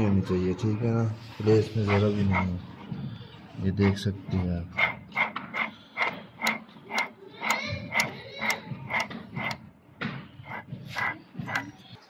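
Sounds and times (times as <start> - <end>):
sharp metallic clicks: 4.8 - 9.6.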